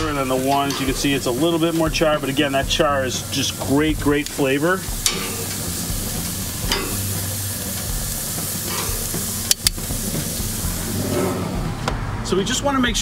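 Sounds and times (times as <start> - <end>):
metal tongs clicking on grate: 0.0 - 1.1, 5.0 - 5.7, 6.6 - 7.1, 8.7 - 9.9
vegetables sizzling on a grill: 0.0 - 11.7.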